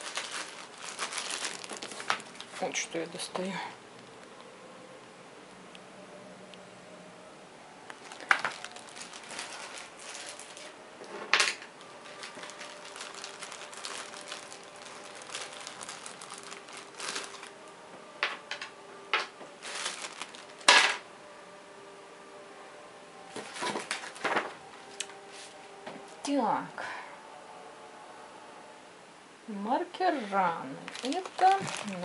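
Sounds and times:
plastic bags crinkling: 0.0s - 3.0s, 7.9s - 21.0s, 23.3s - 25.2s, 30.8s - 32.0s.

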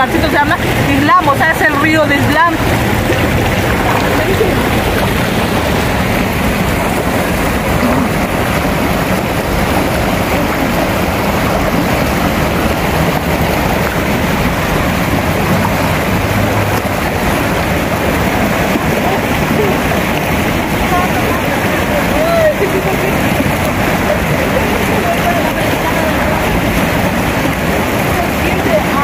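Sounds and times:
river rushing over rocks: 0.0s - 29.0s.

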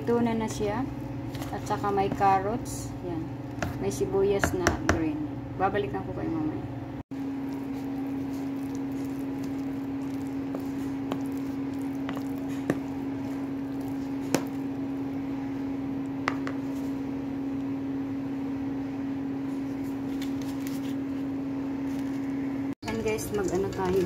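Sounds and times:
steady low hum: 0.0s - 24.0s
wet batter squishing: 7.1s - 15.2s.

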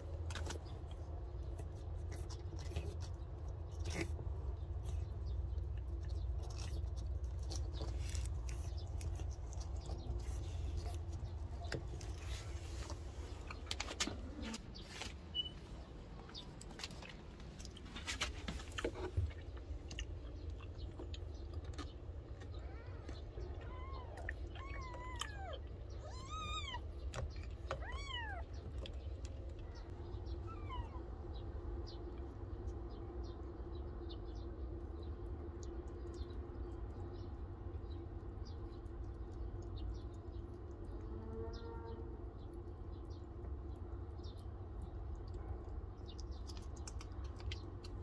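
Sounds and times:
kitten mewing: 22.5s - 26.9s, 27.7s - 28.5s.

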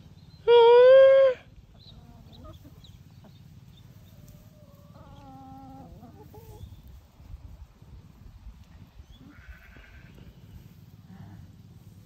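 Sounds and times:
chickens calling: 0.0s - 8.2s
hen clucking: 0.5s - 7.0s.

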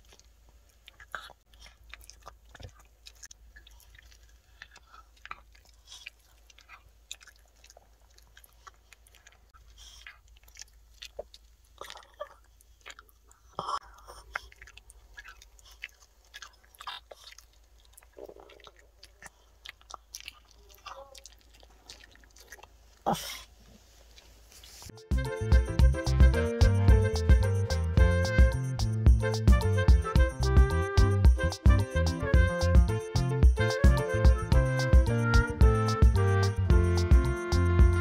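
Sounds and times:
dog chewing treat: 0.0s - 23.4s.

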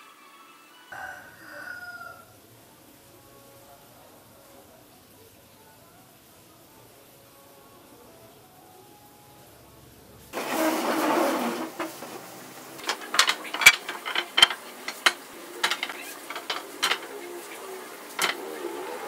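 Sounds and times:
wooden boards knocking together: 10.4s - 18.6s.

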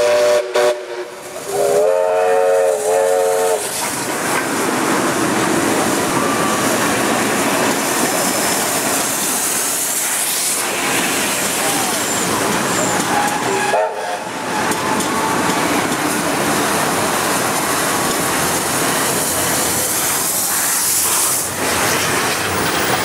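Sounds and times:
steam locomotive whistle: 0.0s - 3.8s, 11.7s - 15.0s
steam train passing: 0.0s - 23.0s.

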